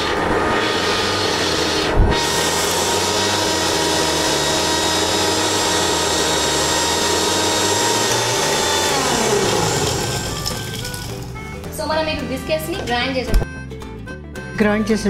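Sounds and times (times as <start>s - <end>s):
mixer grinder motor whine: 0.0s - 11.7s
contents churning in jar: 8.2s - 11.5s.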